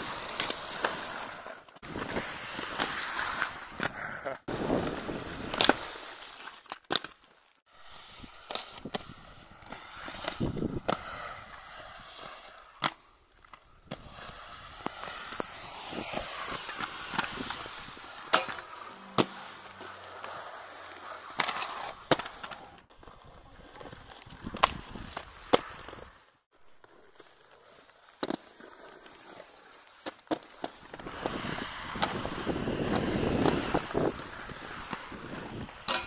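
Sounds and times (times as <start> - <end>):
skate wheels rolling: 0.0 - 36.0
skate landing clacks: 4.6 - 7.3, 12.3 - 20.3, 24.2 - 26.0, 28.2 - 28.5, 30.0 - 36.0.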